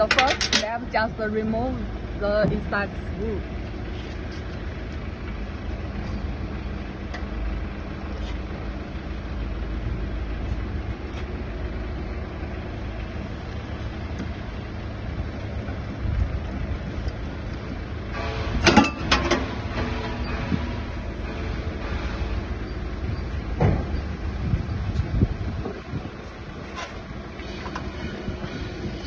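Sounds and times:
metal parts clanking: 0.0 - 0.9, 17.1 - 22.2
steady low rumble: 0.0 - 29.0.

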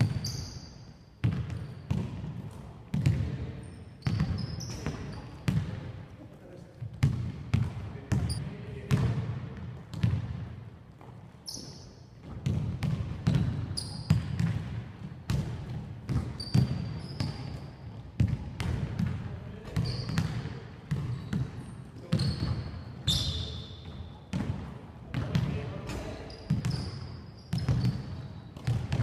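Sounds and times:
basketballs bouncing on wooden court: 0.0 - 0.5, 1.2 - 6.0, 6.8 - 29.0
sneaker squeaks: 0.0 - 5.7, 8.1 - 8.5, 11.0 - 14.5, 16.1 - 18.3, 19.5 - 24.4, 25.2 - 29.0.

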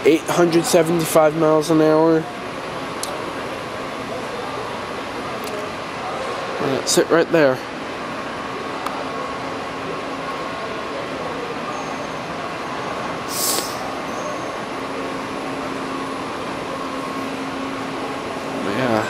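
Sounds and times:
ventilation hum: 0.0 - 19.0
short hiss: 13.3 - 13.9.

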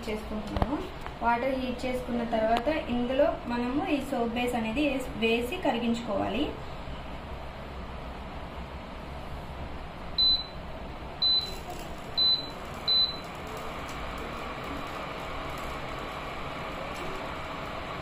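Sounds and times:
steady hum: 0.0 - 18.0
cooktop button beeps: 10.2 - 10.6, 11.2 - 11.6, 12.2 - 13.2.

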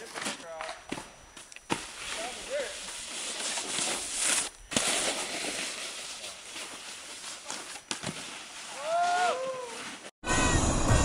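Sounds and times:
snowboard scraping over snow: 1.8 - 10.6
person whooping: 8.7 - 9.9.

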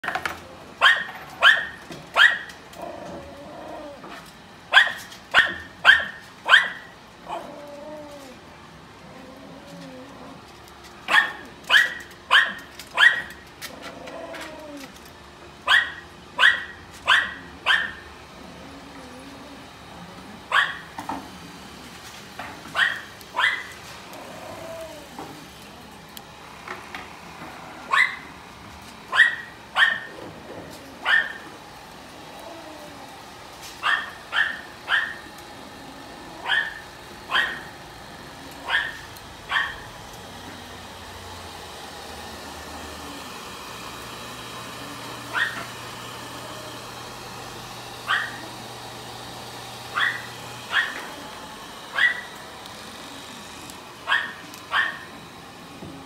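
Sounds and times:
electric dog clippers running: 0.0 - 56.0
small dog barking: 0.8 - 2.5, 4.7 - 7.5, 11.1 - 13.4, 15.6 - 18.0, 20.5 - 20.9, 22.7 - 23.8, 27.9 - 28.3, 29.1 - 30.1, 31.0 - 31.5, 33.8 - 35.2, 36.4 - 37.7, 38.6 - 39.8, 45.3 - 45.7, 48.1 - 48.5, 49.9 - 51.2, 51.9 - 52.4, 54.0 - 55.2.

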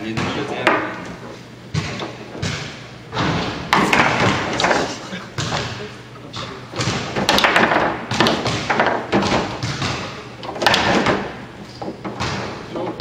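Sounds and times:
foosball ball knocking: 1.8 - 5.8, 6.7 - 13.0
foosball rods clacking: 3.7 - 5.7, 6.7 - 13.0.

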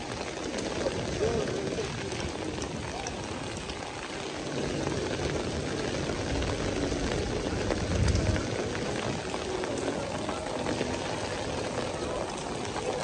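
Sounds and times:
heavy rain on pavement: 0.0 - 13.0
low rumble: 4.4 - 11.8.

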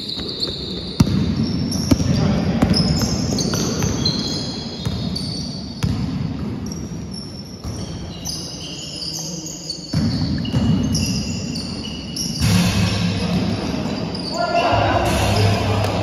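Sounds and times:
shoes squeaking on court floor: 0.0 - 12.4, 13.6 - 14.8
basketball bouncing: 0.2 - 6.6.

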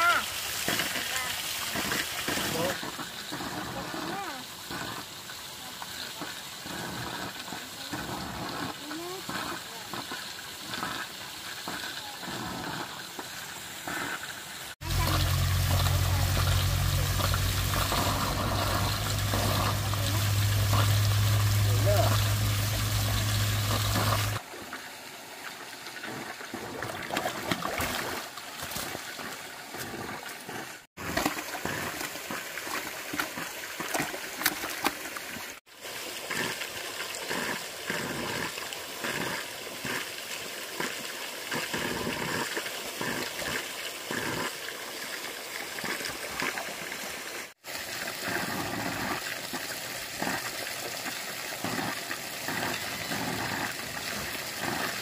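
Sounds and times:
water trickling and splashing: 0.0 - 55.0
low steady hum: 14.8 - 24.4.

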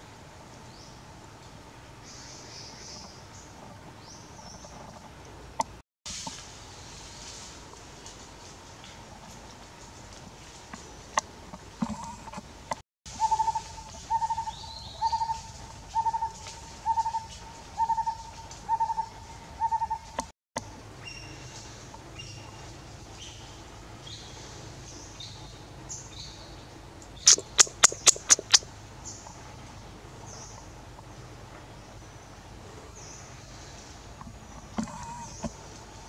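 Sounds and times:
bird hooting call: 13.1 - 20.2
faint bird chirps: 13.1 - 20.2, 27.2 - 29.4
loud sharp clicks: 27.3 - 28.6.

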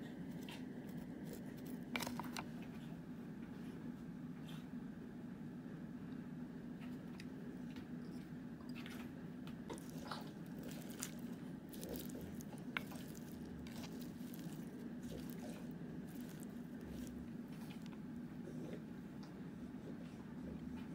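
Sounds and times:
steady low hum: 0.0 - 20.9
salad leaves crunching and rustling: 0.3 - 2.4, 9.7 - 18.0.

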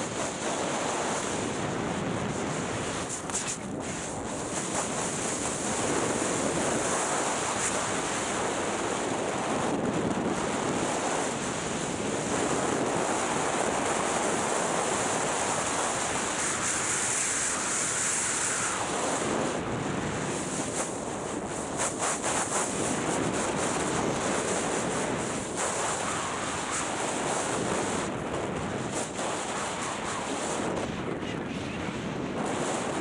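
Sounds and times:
skis scraping over snow: 0.0 - 11.2, 20.1 - 33.0
wind rushing over microphone: 0.0 - 33.0.

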